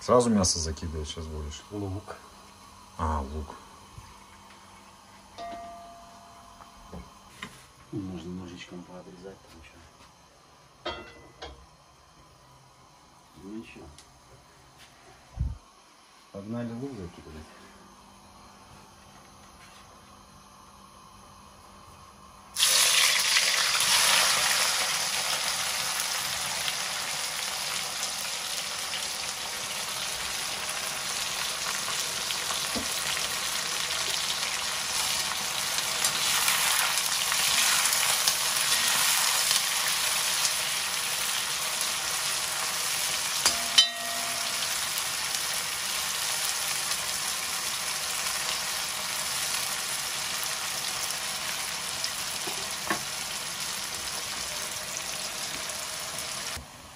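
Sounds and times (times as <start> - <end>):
onions sizzling in hot oil: 22.5 - 56.8.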